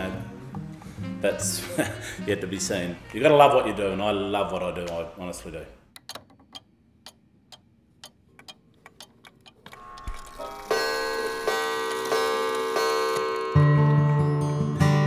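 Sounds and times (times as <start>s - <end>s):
acoustic guitar music: 0.0s - 3.2s, 9.8s - 15.0s
clock ticking: 6.0s - 13.5s.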